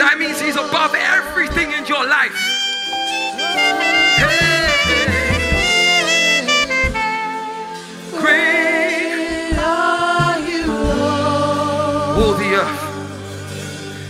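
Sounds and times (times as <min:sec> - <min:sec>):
wordless wavering singing: 0:02.3 - 0:14.0
keyboards and bass guitar: 0:02.4 - 0:08.3, 0:09.3 - 0:14.0.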